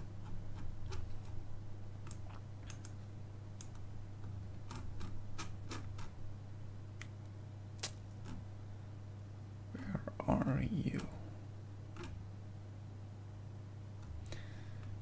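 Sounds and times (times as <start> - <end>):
low electrical hum: 0.0 - 15.0
mouse and keyboard clicks: 2.0 - 3.0, 3.6 - 6.1.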